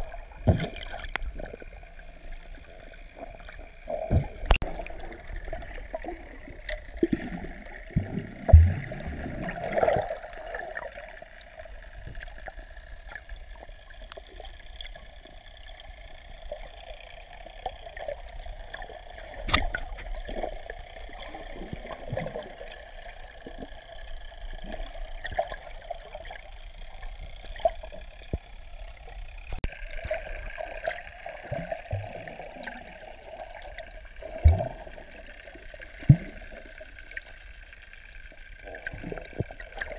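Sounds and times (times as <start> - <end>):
underwater water wash: 0.0 - 39.9
underwater clicks: 0.4 - 1.7, 3.6 - 5.0, 12.0 - 20.8.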